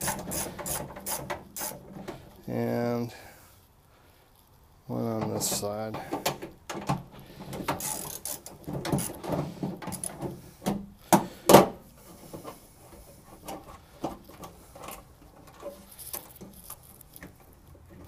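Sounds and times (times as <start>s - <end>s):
ratchet wrench clicking: 0.0s - 1.8s, 7.8s - 9.2s.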